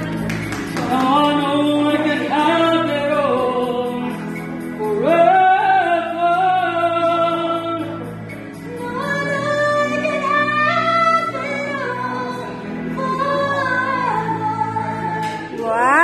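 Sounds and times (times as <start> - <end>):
woman singing: 0.0 - 4.0, 8.7 - 16.0
backing music: 0.0 - 16.0.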